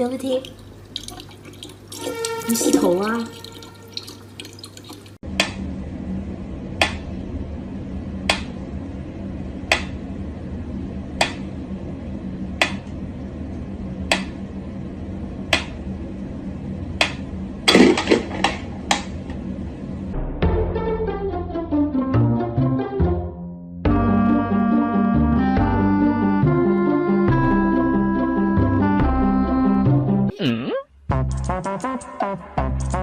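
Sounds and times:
steady low hum: 0:05.2 - 0:20.4.

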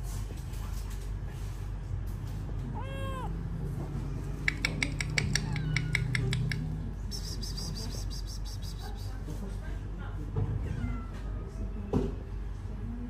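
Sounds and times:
kitten meowing: 0:02.7 - 0:03.4, 0:04.4 - 0:06.5
rapid sharp clicks: 0:04.4 - 0:06.7.

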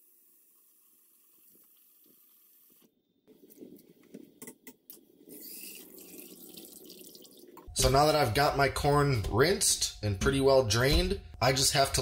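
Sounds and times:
faucet running faintly: 0:05.3 - 0:07.7
water splashing and draining: 0:05.3 - 0:07.7.

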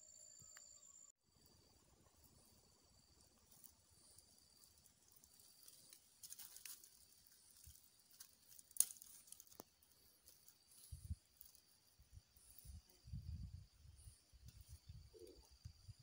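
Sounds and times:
faint insect drone: 0:00.0 - 0:16.0
soft crackles: 0:03.2 - 0:13.0.

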